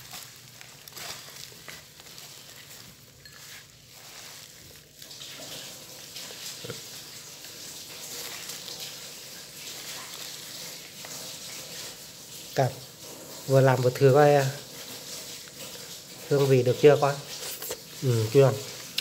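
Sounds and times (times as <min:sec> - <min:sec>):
leaves rustling being tossed: 0:00.0 - 0:12.7.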